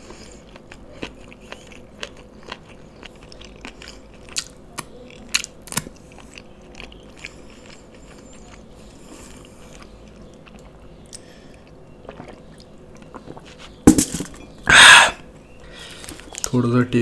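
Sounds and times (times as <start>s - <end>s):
loud breathy burst: 14.7s - 16.0s.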